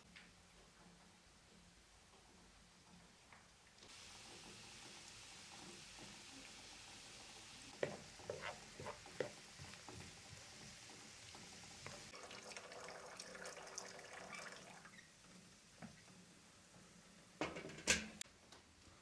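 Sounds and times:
onions sizzling in oil: 3.9s - 12.2s
wooden spoon scraping a pan: 7.8s - 12.1s
water poured into metal jug: 11.3s - 15.1s.

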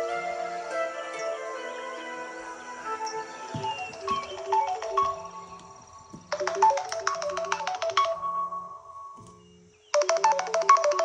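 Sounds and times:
melodic phone ringtone: 2.9s - 5.6s, 6.3s - 9.1s, 10.0s - 11.0s.

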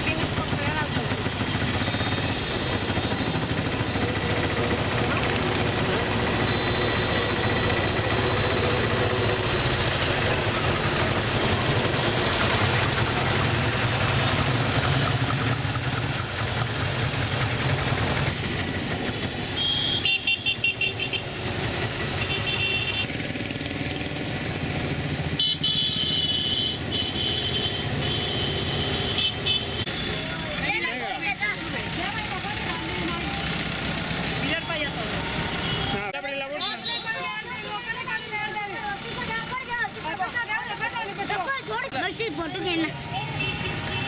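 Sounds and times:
auto-rickshaw engine running: 0.0s - 44.0s
motorcycles passing: 0.0s - 44.0s
vehicle horns honking: 1.6s - 4.2s, 6.2s - 9.5s, 19.1s - 23.1s, 25.3s - 30.6s, 34.2s - 37.4s, 43.1s - 44.0s.

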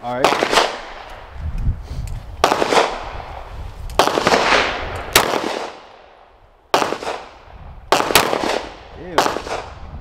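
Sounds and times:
pistol shots: 0.1s - 1.1s, 2.4s - 3.2s, 4.0s - 6.0s, 6.7s - 9.7s.

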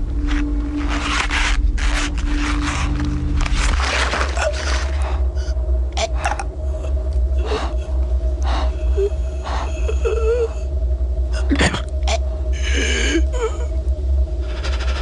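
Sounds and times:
steady low hum: 0.0s - 15.0s
person breathing heavily: 4.6s - 10.8s, 12.3s - 15.0s.

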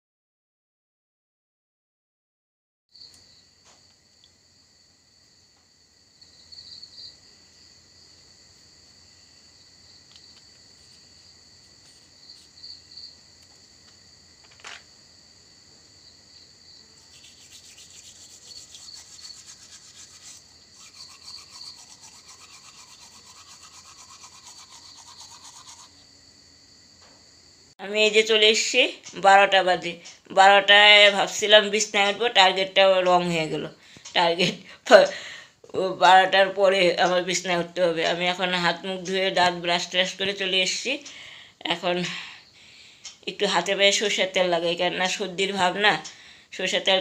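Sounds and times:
crickets chirping: 2.9s - 47.0s
toothbrush scrubbing teeth: 17.0s - 26.0s.

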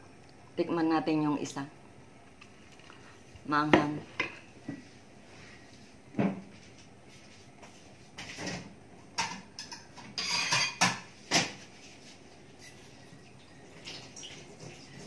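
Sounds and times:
dishes and utensils clinking: 8.2s - 11.6s.

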